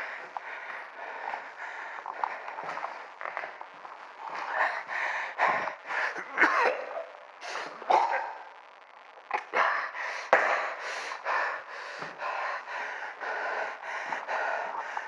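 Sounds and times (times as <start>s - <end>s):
person panting hard: 0.0s - 3.5s, 4.3s - 6.2s, 9.7s - 15.0s.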